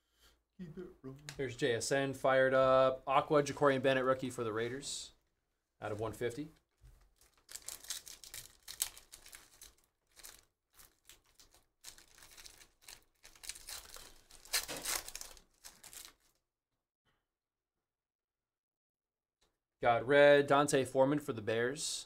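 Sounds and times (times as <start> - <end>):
foil pack crinkling and tearing: 7.1 - 16.4.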